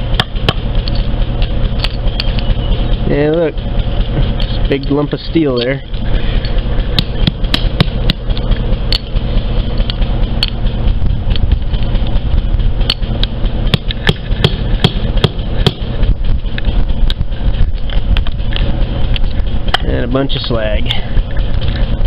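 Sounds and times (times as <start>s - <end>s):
metal tool chipping slag: 0.0s - 1.0s, 6.9s - 9.2s, 12.8s - 15.9s.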